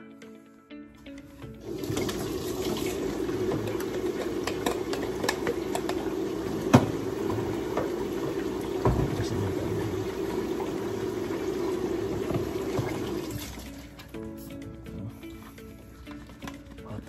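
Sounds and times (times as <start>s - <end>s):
tap water running: 1.6s - 14.1s
bottles clicking: 1.8s - 8.0s.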